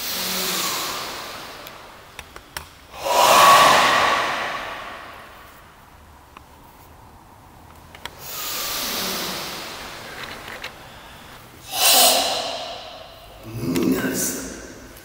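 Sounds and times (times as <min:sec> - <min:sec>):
forced exhale: 0:00.0 - 0:01.6, 0:02.9 - 0:05.4, 0:08.2 - 0:10.1, 0:10.8 - 0:13.4
long hissing breath: 0:00.0 - 0:01.8, 0:08.2 - 0:10.1, 0:10.8 - 0:13.4
forceful breathing: 0:02.9 - 0:05.4, 0:10.8 - 0:13.4.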